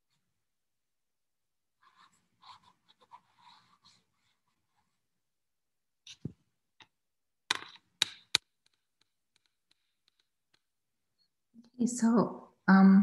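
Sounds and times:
sharp clicks and knocks: 6.1 - 10.8.

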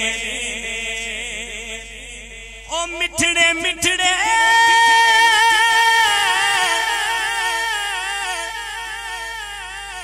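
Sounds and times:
man singing into a microphone: 0.0 - 10.0.

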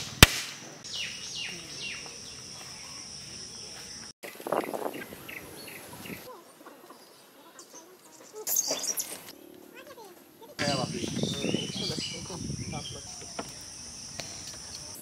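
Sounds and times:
high insect drone: 0.8 - 5.8, 10.6 - 15.0.

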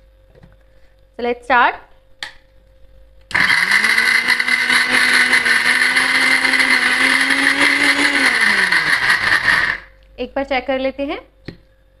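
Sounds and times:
mixer grinder motor whirring: 3.3 - 9.9.

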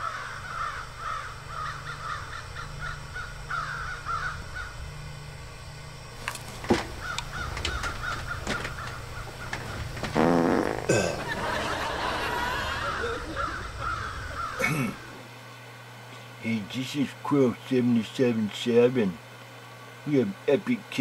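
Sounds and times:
crows cawing: 0.0 - 4.8, 6.7 - 10.2, 11.2 - 15.2
steady low hum: 0.0 - 21.0.

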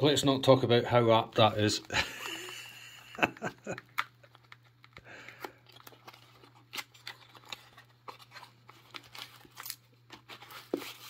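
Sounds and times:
plastic wrapping crinkling: 3.7 - 11.0.

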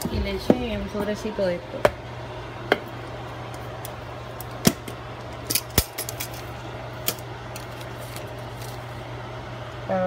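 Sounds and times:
foil packets rustling: 7.5 - 9.0.

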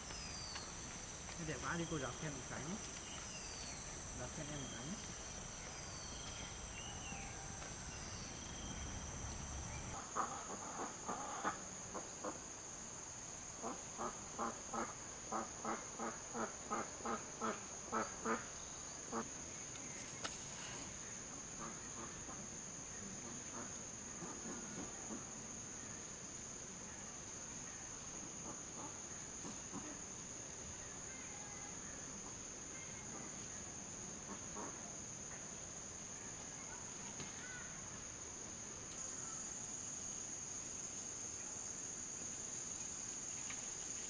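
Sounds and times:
insects chirping: 0.0 - 44.0.

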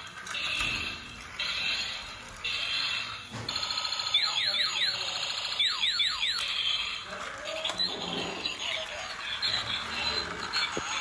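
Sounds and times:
electronic beeps: 3.6 - 6.6.

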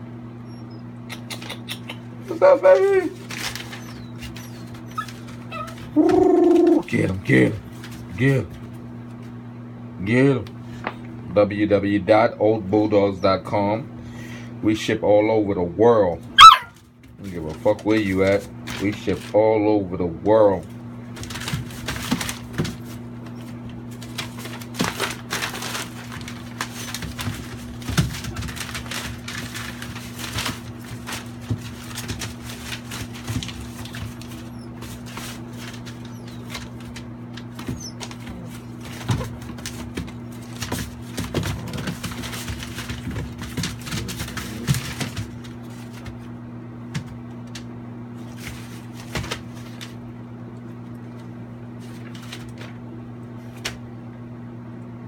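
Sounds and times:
paws scratching: 0.0 - 9.5, 16.3 - 19.4, 20.5 - 54.0
paper crinkling and rustling: 2.7 - 8.8, 16.8 - 19.4, 20.6 - 50.1, 50.7 - 52.8.

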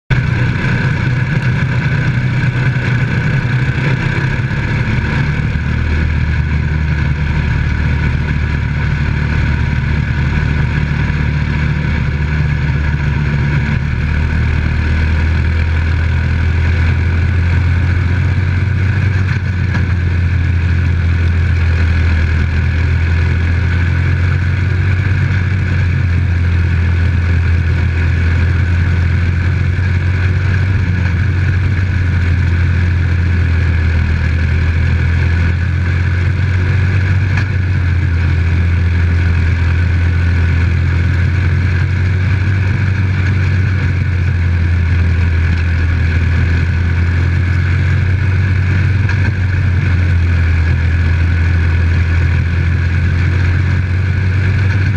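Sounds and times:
race car engine running: 0.0 - 54.9
track noise: 0.1 - 54.9
wind: 0.1 - 54.9.

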